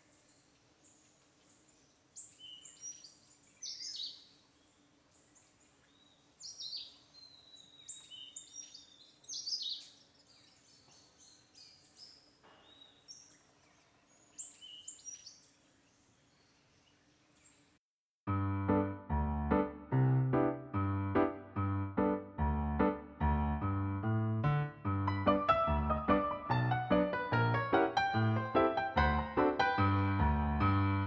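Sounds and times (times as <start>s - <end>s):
small birds chirping: 0.0s - 17.8s.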